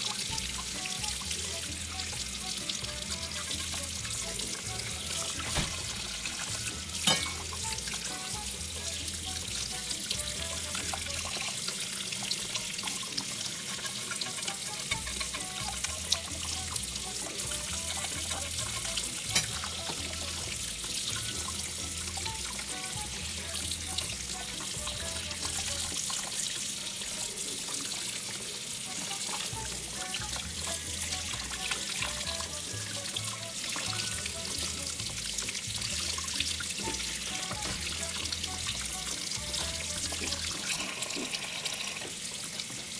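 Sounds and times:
tap water running into sink: 0:00.0 - 0:42.9
music bass line: 0:29.5 - 0:40.6.

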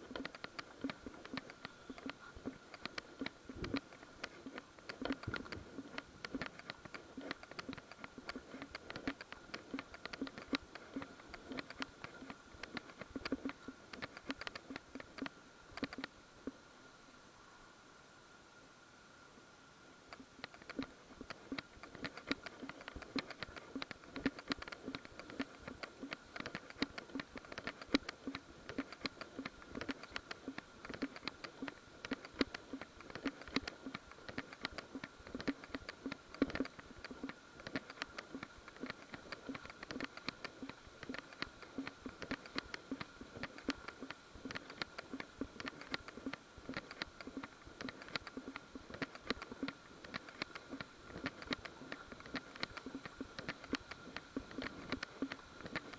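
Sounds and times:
faint high whine: 0:00.0 - 0:37.6.

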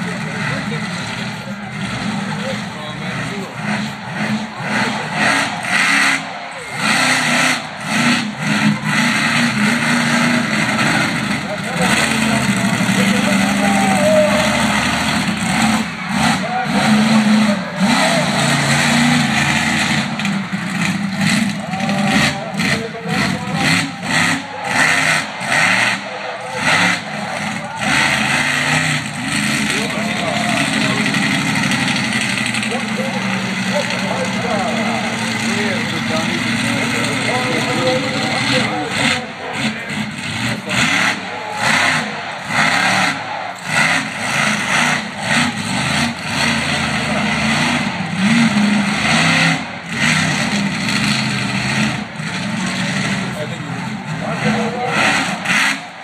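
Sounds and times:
truck engine revving in bursts: 0:00.0 - 0:56.0.

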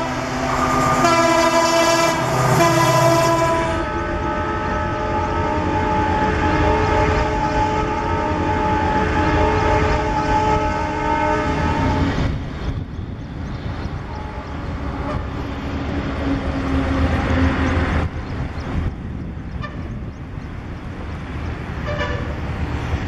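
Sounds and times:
locomotive horn: 0:00.0 - 0:12.3, 0:14.1 - 0:15.4, 0:19.6 - 0:20.0, 0:21.8 - 0:22.6.

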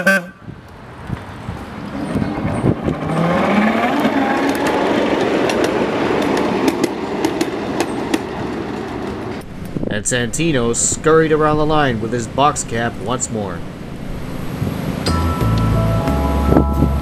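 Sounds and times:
wheels clicking over rail joints: 0:00.6 - 0:14.2.

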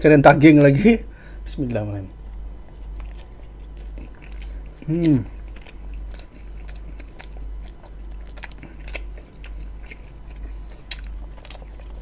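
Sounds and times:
low steady hum: 0:00.0 - 0:12.0
wet chewing mouth clicks: 0:02.7 - 0:12.0.

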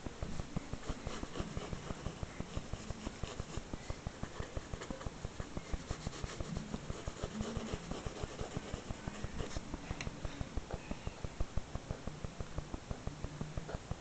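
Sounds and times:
pencil shading on paper: 0:00.7 - 0:09.7.

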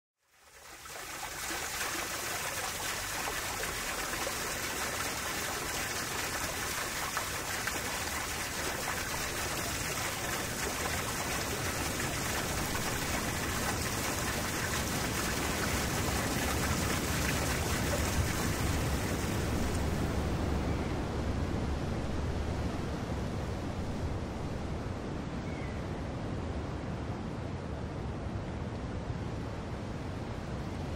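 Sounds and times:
water falling from waterfall: 0:00.2 - 0:20.1.

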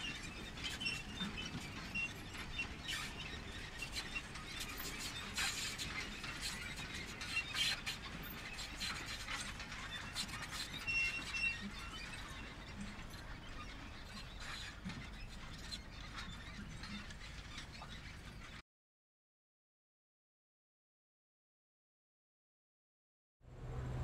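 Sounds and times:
short high squeaks: 0:00.0 - 0:18.6.

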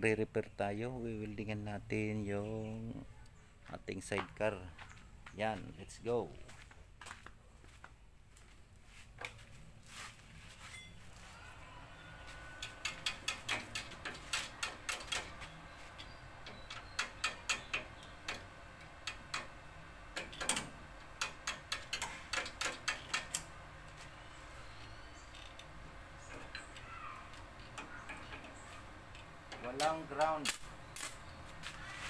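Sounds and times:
welding electrode clicking on steel: 0:12.6 - 0:23.5.

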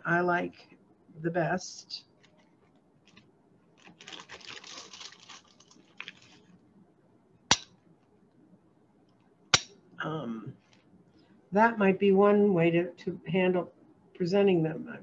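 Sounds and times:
plastic bag crinkling: 0:02.2 - 0:06.6
stones clattering in a bag: 0:03.8 - 0:06.5.

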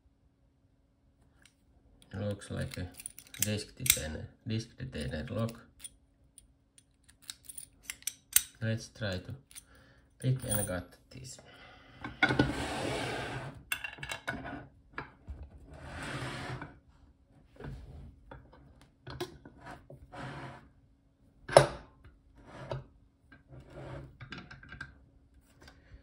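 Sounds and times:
metal clicks and knocks: 0:06.8 - 0:08.6.

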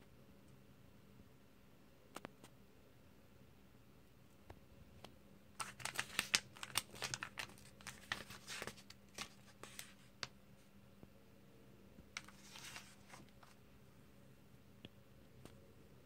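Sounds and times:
paper pages crackling and rustling: 0:05.6 - 0:10.3, 0:12.1 - 0:13.6.

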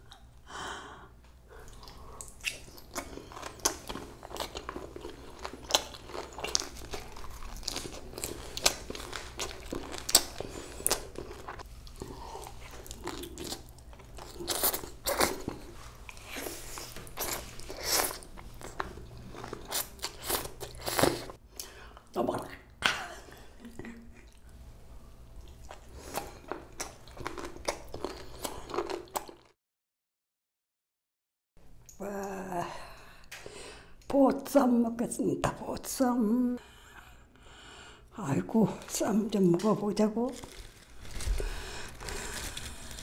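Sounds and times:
person chewing crunchy food: 0:01.6 - 0:21.4, 0:25.4 - 0:29.6, 0:40.3 - 0:43.0.

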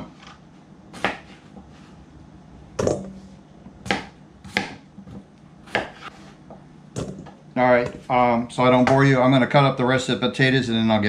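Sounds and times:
knife chopping on cutting board: 0:00.9 - 0:01.6, 0:03.8 - 0:06.4.

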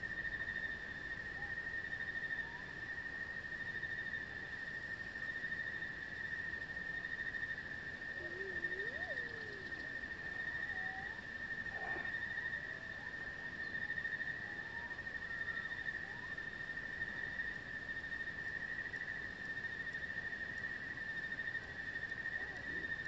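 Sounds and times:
high-pitched insect trill: 0:00.0 - 0:23.0
faint wavering calls: 0:07.9 - 0:17.3.

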